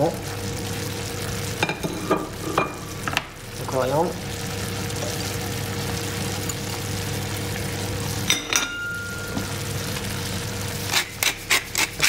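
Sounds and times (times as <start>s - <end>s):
low electrical hum: 0.0s - 12.0s
sauce simmering and sizzling: 0.0s - 12.0s.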